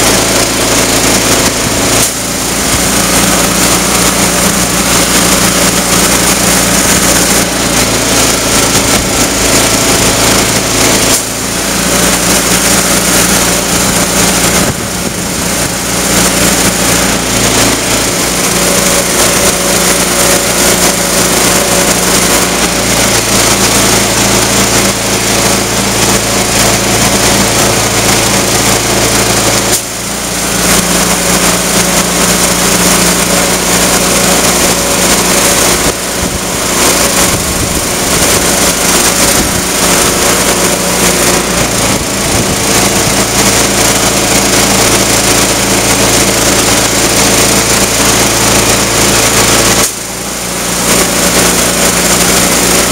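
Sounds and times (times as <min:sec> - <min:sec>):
air compressor engine running: 0:00.0 - 0:52.9.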